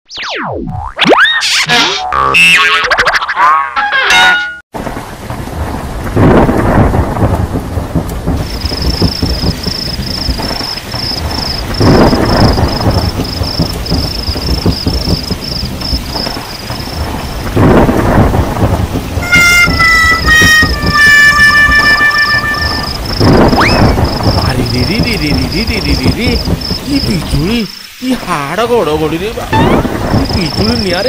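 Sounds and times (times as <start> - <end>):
low rumble of thunder: 4.8 - 27.5, 29.0 - 31.0
heavy rain: 4.8 - 31.0
music: 19.2 - 22.9.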